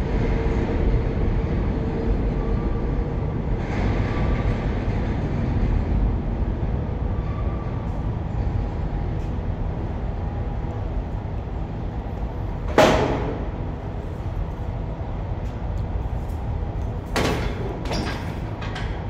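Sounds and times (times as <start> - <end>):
subway train rumbling: 0.0 - 19.0
sharp bang: 12.7 - 13.6.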